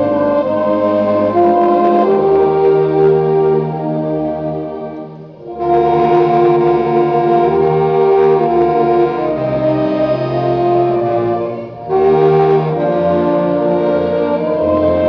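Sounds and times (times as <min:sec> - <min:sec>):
bass clarinets playing held chords: 0:00.0 - 0:15.0.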